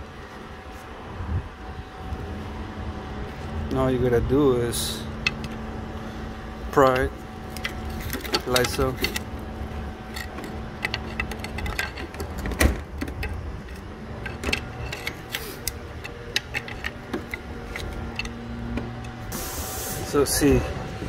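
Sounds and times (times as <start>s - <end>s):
faint steady hum: 0.0s - 21.0s
metallic clicks and knocks of tools: 6.9s - 9.3s, 10.1s - 18.4s.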